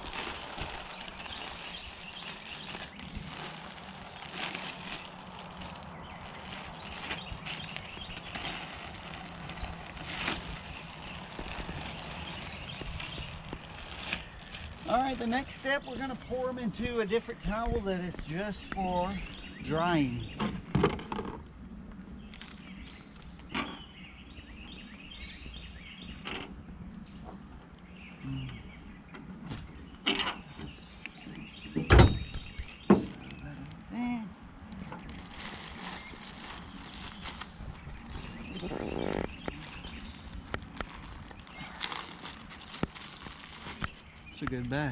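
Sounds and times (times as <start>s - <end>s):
pellets clicking in plastic bag: 0.0s - 15.6s, 39.2s - 44.8s
bag crinkle: 0.0s - 16.0s, 22.3s - 23.5s, 35.0s - 44.9s
birds chirping: 0.0s - 44.9s.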